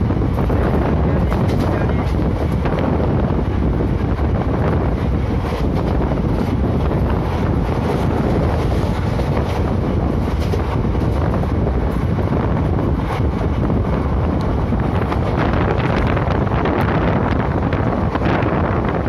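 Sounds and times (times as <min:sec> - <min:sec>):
train rumbling on track: 0:00.0 - 0:19.0
wind buffeting microphone: 0:00.0 - 0:19.0.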